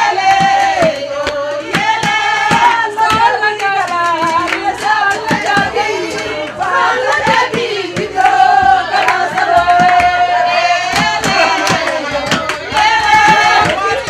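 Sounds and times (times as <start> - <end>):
rhythmic hand clapping: 0.0 - 14.0
woman singing: 0.0 - 14.0.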